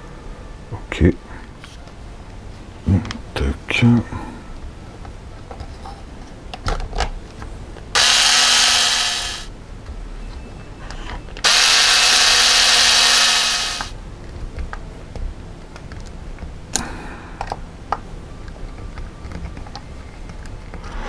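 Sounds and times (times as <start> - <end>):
electric screwdriver running: 8.0 - 9.5, 11.4 - 13.9.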